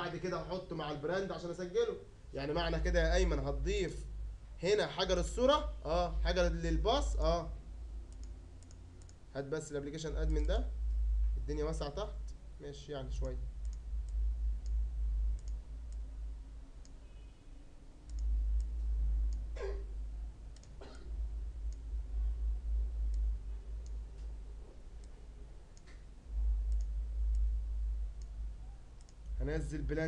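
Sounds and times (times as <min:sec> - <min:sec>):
strong low hum: 0:00.0 - 0:30.0
computer mouse clicking: 0:08.1 - 0:09.2, 0:10.2 - 0:11.0, 0:13.2 - 0:16.1, 0:18.0 - 0:19.5, 0:20.5 - 0:20.8, 0:23.0 - 0:24.3, 0:25.0 - 0:27.5, 0:28.1 - 0:28.4, 0:29.0 - 0:29.4.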